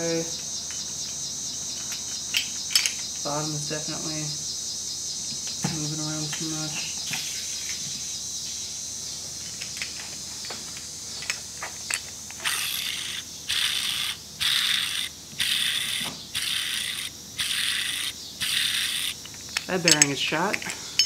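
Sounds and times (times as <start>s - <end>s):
small metal clicks: 10.8s - 21.0s
crankshaft whirring when spun: 11.8s - 19.7s.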